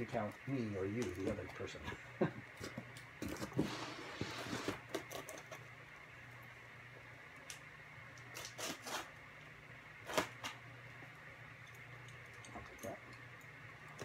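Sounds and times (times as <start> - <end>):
cardboard scraping and rustling: 3.2 - 5.3.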